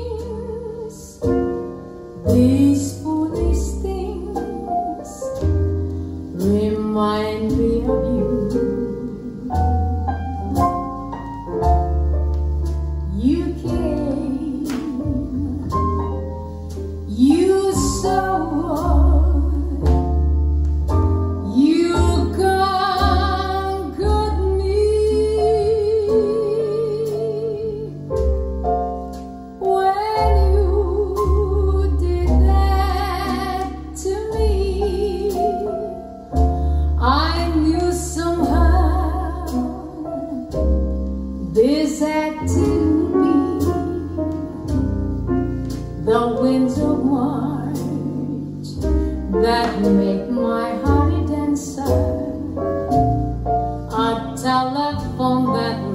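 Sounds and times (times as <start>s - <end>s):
piano and deep bass: 0.0s - 55.9s
woman singing with vibrato: 49.4s - 52.6s.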